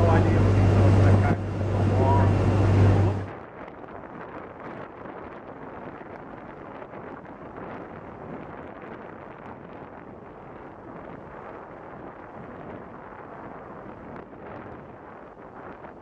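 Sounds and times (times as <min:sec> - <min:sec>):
boat engine: 0:00.0 - 0:03.3
water noise: 0:00.0 - 0:15.8
wind buffeting microphone: 0:00.0 - 0:16.0.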